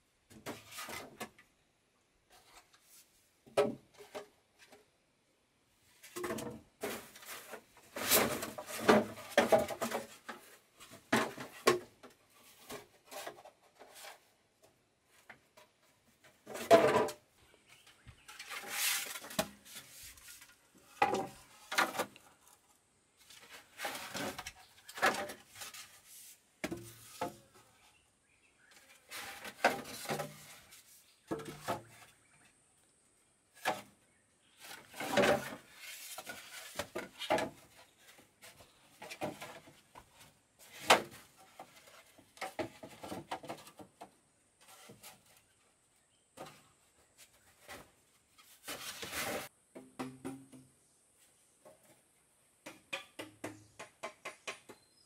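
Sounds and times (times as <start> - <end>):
knocks and scrapes of handled objects: 0.3 - 1.4, 6.0 - 28.0, 28.7 - 32.6, 33.6 - 45.7, 46.3 - 55.0.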